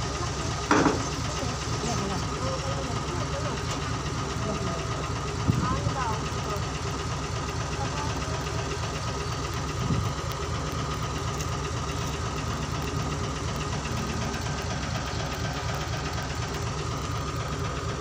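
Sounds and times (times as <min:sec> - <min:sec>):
diesel engine pulsing rumble: 0:00.0 - 0:18.0
thin steady whine: 0:00.0 - 0:18.0.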